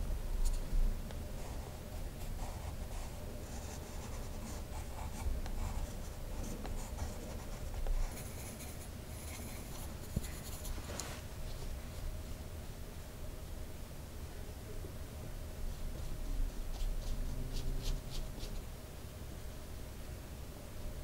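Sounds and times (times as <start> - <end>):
pencil scratching on paper: 1.4 - 10.8.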